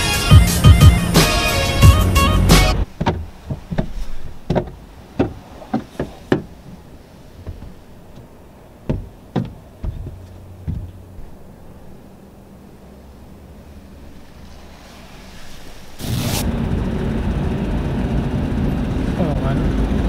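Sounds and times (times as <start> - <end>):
knocks and clicks: 3.0 - 6.8, 7.4 - 8.3, 8.9 - 11.0.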